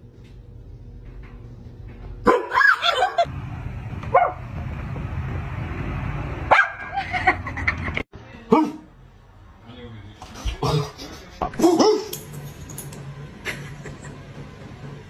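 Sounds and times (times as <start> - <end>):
dog barking and yipping: 2.2 - 3.2, 4.1 - 4.4, 6.5 - 7.0, 11.6 - 12.2.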